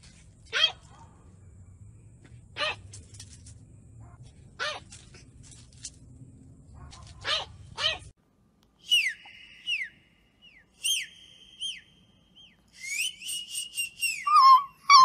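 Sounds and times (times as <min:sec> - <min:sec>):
person whistling: 0:08.8 - 0:10.0, 0:10.8 - 0:11.9, 0:12.7 - 0:15.0.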